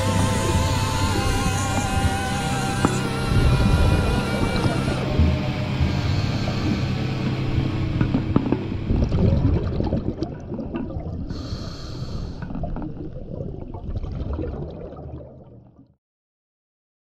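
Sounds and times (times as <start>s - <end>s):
regulator hiss: 0.0s - 7.8s, 11.3s - 12.5s
underwater bubbles gurgling: 0.0s - 16.0s.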